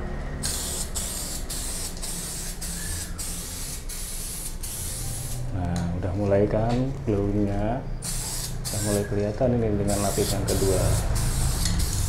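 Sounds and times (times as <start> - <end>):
aerosol can hissing: 0.4 - 5.4, 8.0 - 9.2, 9.8 - 12.0.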